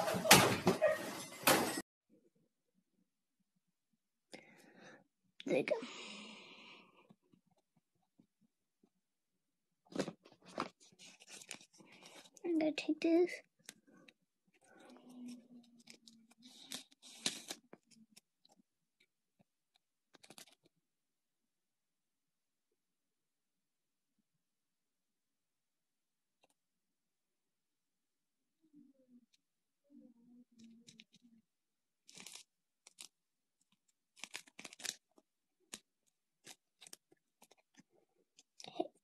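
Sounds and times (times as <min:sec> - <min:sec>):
plastic wrapper crinkling: 0:09.9 - 0:12.4, 0:20.1 - 0:20.7, 0:32.0 - 0:38.9.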